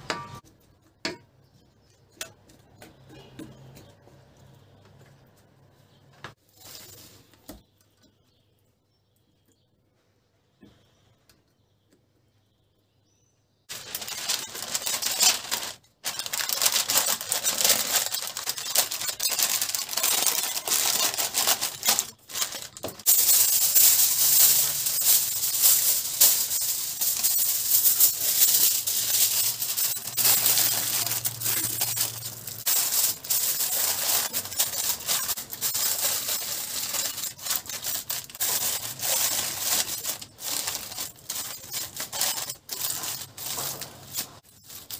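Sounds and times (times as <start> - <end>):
baking paper rustling: 6.4 - 7.6, 13.7 - 44.9
aluminium foil crinkling: 6.5 - 7.6, 13.7 - 44.9.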